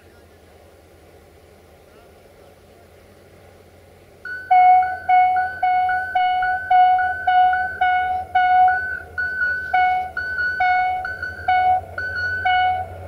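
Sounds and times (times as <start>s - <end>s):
low engine hum: 0.0s - 13.0s
locomotive air horn blasts: 4.3s - 13.0s.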